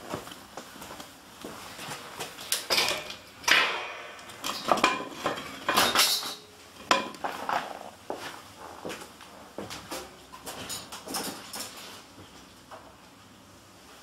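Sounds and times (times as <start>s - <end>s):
bicycle clanking and rattling: 2.5s - 7.9s.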